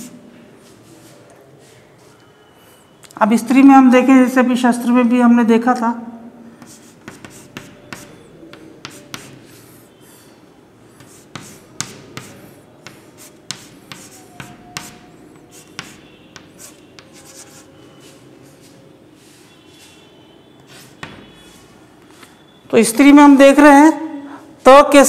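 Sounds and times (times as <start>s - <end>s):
chalk tapping and scraping on chalkboard: 6.6s - 22.4s.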